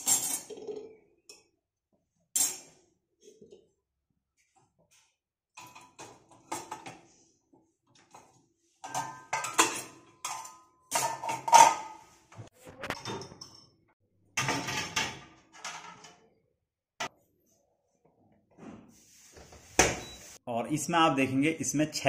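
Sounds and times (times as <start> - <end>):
steel pots and utensils clattering: 0.0 - 1.5, 5.5 - 7.2, 7.9 - 12.2, 12.8 - 16.2.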